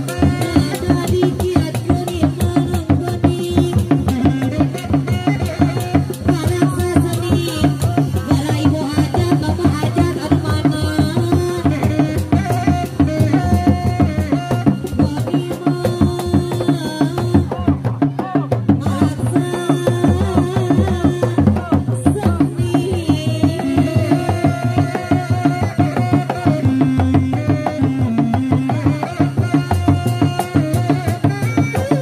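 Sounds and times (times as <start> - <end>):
drums beaten in fast rhythm: 0.0 - 32.0
reed pipe melody: 3.0 - 18.4, 23.1 - 32.0.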